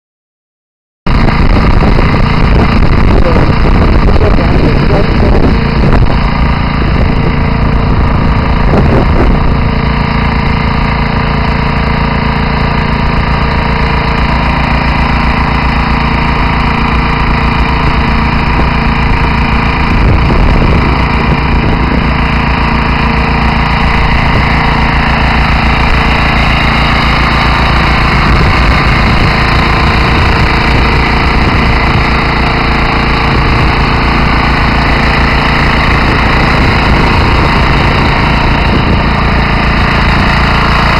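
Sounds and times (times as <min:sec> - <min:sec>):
diesel engine running: 0:01.1 - 0:40.9
pump discharging water: 0:01.1 - 0:40.9.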